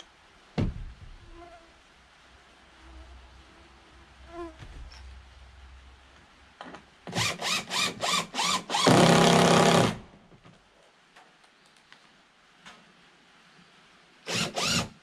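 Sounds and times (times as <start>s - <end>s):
cordless drill driving a screw: 7.1s - 10.0s, 14.3s - 15.0s.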